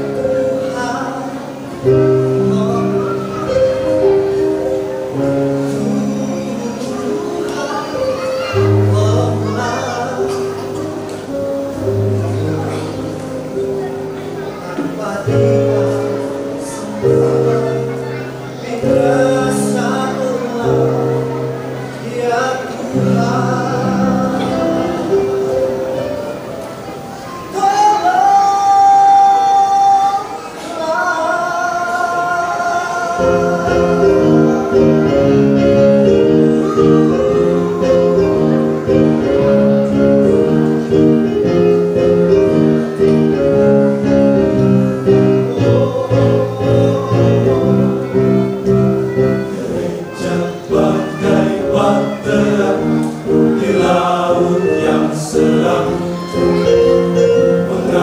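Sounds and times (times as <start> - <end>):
choir singing in harmony: 14.8 - 26.5, 27.2 - 58.0.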